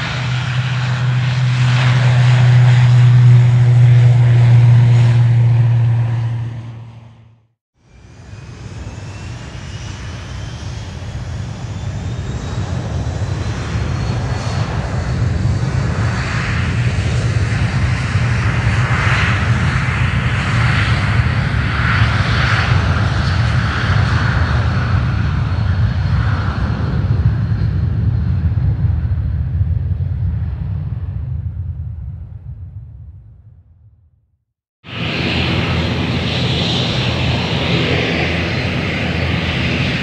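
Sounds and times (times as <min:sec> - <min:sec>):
aircraft engines taking off: 0:00.0 - 0:33.8, 0:34.8 - 0:40.0.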